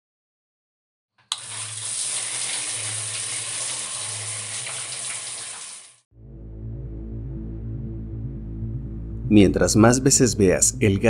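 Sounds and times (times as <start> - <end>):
low droning music: 6.1 - 11.0.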